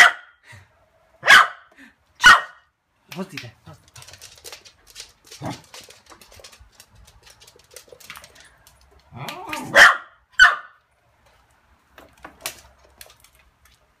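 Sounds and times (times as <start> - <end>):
small dog barking: 0.0 - 0.4, 1.2 - 2.7, 9.3 - 10.8.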